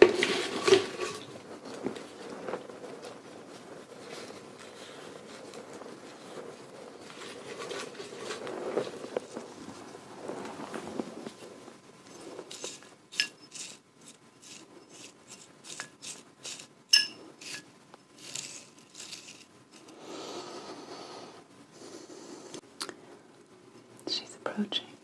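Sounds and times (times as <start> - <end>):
glass clinks ringing: 16.9 - 17.2
glass taps and scrapes: 16.9 - 17.6.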